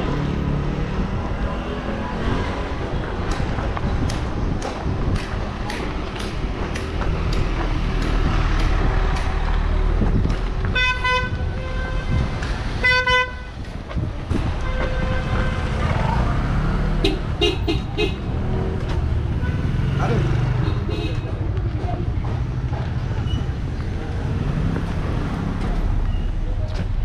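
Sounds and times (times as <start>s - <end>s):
vehicle horns honking: 10.7s - 13.5s, 17.0s - 18.3s.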